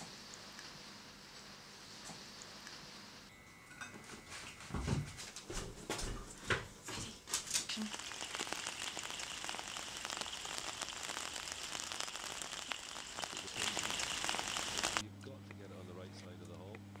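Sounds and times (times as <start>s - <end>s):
rain pattering: 7.4s - 15.0s.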